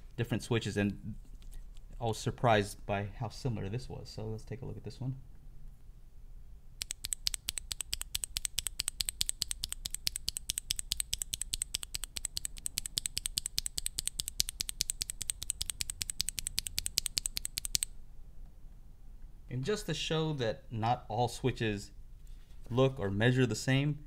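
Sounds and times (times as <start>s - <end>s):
mechanical keyboard switch clacking: 6.8s - 17.9s.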